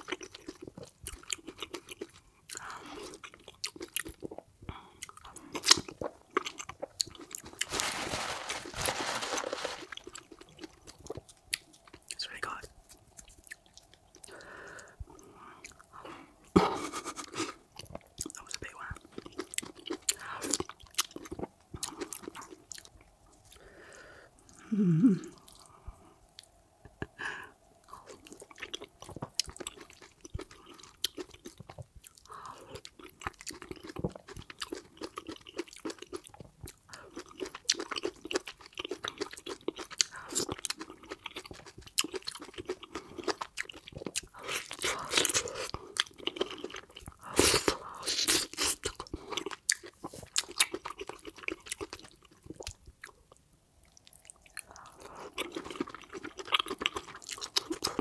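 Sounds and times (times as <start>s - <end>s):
wet chewing and mouth smacks: 0.0s - 7.7s, 9.9s - 16.0s, 17.2s - 23.7s, 27.9s - 58.0s
person humming low: 24.6s - 25.4s.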